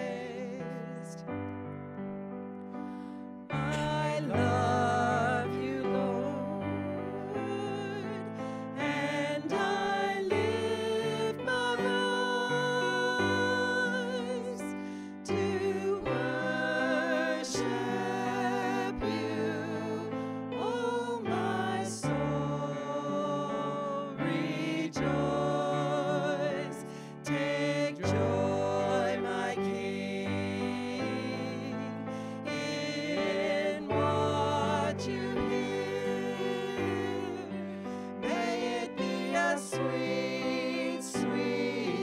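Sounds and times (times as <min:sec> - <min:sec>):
vocal trio singing worship song: 0:00.0 - 0:01.5, 0:02.8 - 0:42.0
keyboard accompaniment: 0:00.0 - 0:42.0.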